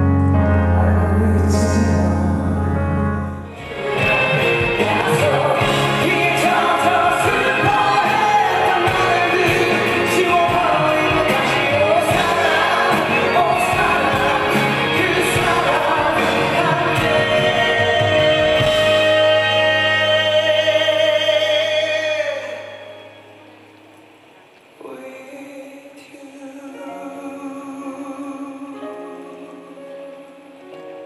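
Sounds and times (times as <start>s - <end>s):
band accompaniment: 0.0s - 23.8s
man singing a ballad: 0.4s - 3.1s, 4.1s - 23.1s, 24.8s - 30.2s.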